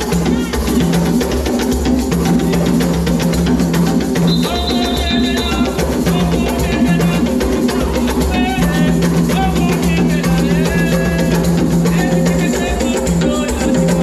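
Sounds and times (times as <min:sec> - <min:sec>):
hand drums dance rhythm: 0:00.0 - 0:14.0
high held tones: 0:04.0 - 0:11.3.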